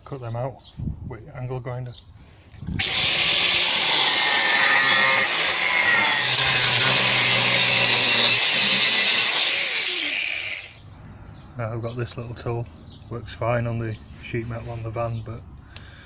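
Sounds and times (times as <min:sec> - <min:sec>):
angle grinder cutting metal: 0:02.8 - 0:10.8.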